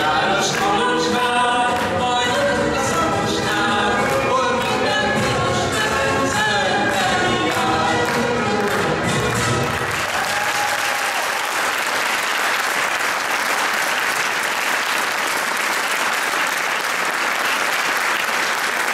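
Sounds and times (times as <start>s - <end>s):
dance music: 0.0s - 10.0s
audience applauding: 7.4s - 18.9s.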